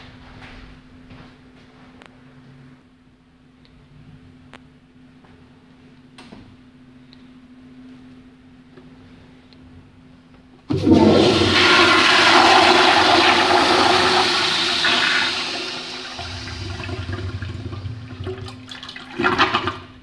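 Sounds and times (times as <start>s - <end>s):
toilet flushing: 10.7s - 20.0s.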